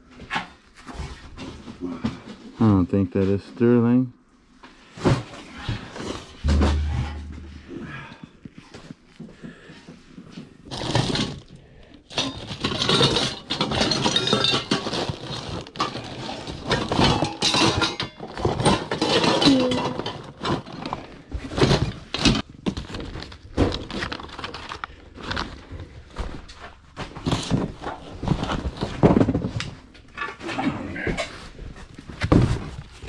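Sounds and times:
rustling: 0:04.8 - 0:07.9
objects clinking and clattering: 0:10.7 - 0:25.6.

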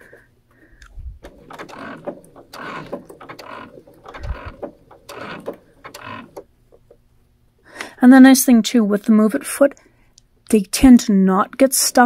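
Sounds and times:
low bumps: 0:00.8 - 0:06.5
sewing machine stitching: 0:01.2 - 0:06.5.

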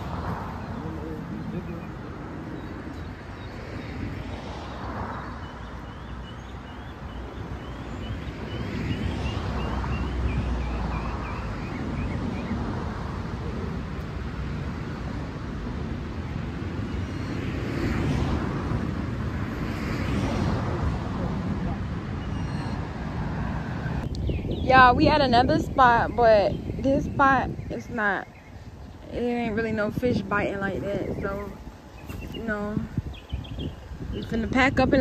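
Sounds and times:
distant road traffic rumble: 0:00.0 - 0:35.0
wind on microphone: 0:00.0 - 0:35.0
bird chirping: 0:05.0 - 0:12.7, 0:22.1 - 0:22.9, 0:24.0 - 0:34.6.

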